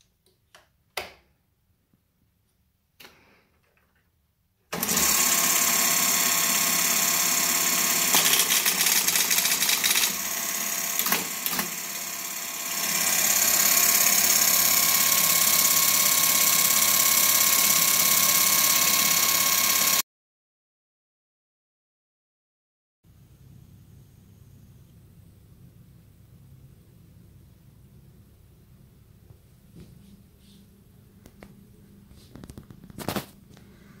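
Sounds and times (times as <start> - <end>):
teletype mechanical whir: 4.8 - 20.0
rapid teletype key clicks: 8.0 - 10.2.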